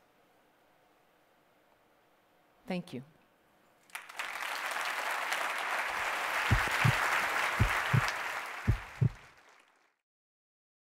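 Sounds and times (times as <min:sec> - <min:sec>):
audience applauding: 0:03.9 - 0:10.0
deep low thuds: 0:06.5 - 0:07.0, 0:07.6 - 0:08.1, 0:08.7 - 0:09.2.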